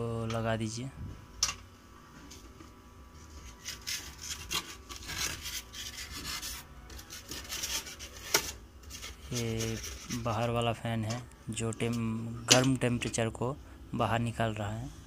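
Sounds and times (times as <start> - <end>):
foam and wooden lid scraping: 3.3 - 10.5.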